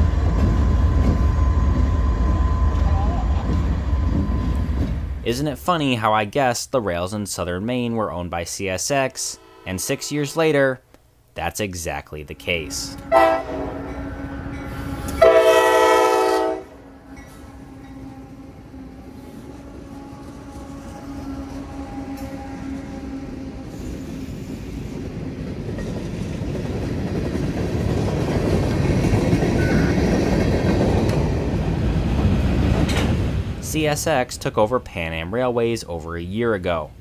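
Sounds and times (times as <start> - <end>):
locomotive engines droning: 0.0 - 5.8, 8.8 - 34.8
train wheels on rails: 0.0 - 5.8, 12.7 - 34.3
train horn blast: 9.2 - 10.7, 12.1 - 24.7.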